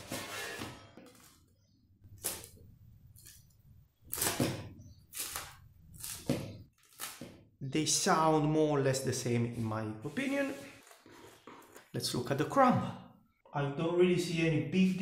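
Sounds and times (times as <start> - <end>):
pizza crust crunching: 5.1 - 7.4.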